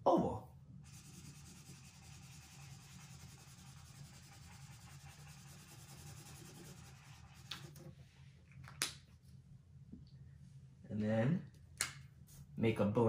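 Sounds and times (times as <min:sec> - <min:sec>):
marker scratching on paper: 0:00.8 - 0:07.9.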